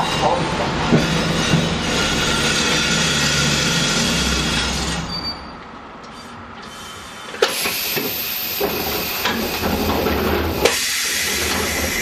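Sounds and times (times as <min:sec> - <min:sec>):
compressed air hissing: 0:10.6 - 0:12.0.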